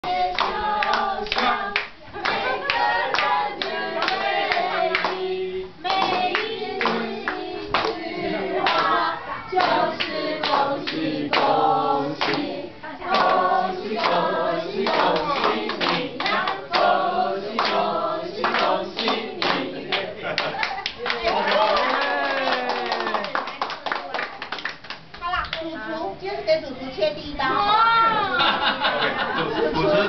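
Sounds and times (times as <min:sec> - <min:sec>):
group singing: 0:00.0 - 0:20.4
people clapping: 0:00.1 - 0:25.7.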